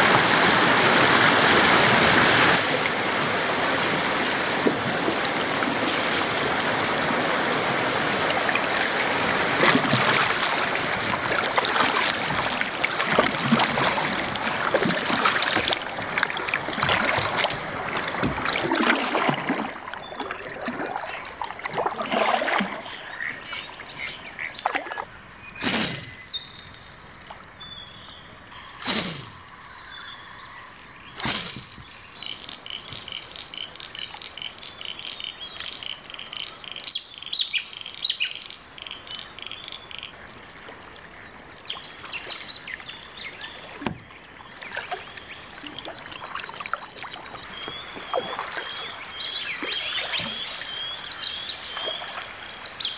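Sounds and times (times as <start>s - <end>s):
river water rushing: 0.0s - 19.8s
paddle splashes: 0.0s - 27.7s, 28.6s - 30.1s, 31.0s - 36.9s, 39.4s - 52.7s
faint bird chirps: 22.9s - 40.2s
short swishes: 25.6s - 26.9s, 28.8s - 29.8s, 31.2s - 32.1s, 32.8s - 33.6s.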